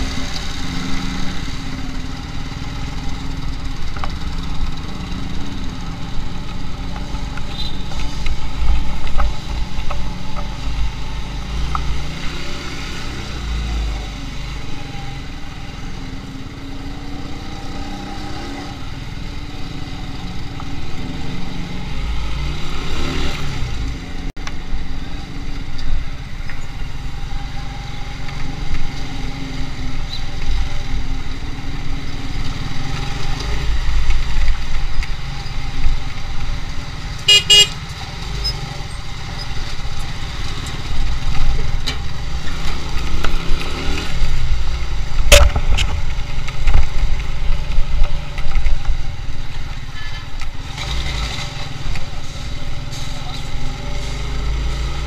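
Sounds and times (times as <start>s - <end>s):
motorcycle engine rumbling: 0.0s - 12.8s, 23.6s - 55.0s
vehicle horn honk: 37.3s - 37.8s.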